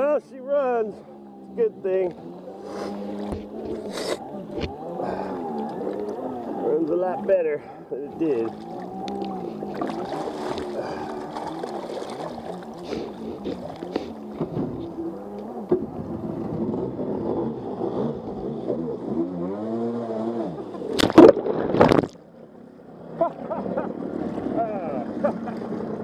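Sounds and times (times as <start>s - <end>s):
jet ski engine revving: 0.7s - 21.8s, 22.9s - 26.0s
water splashing on camera: 2.6s - 7.3s, 8.1s - 18.8s, 20.8s - 22.2s.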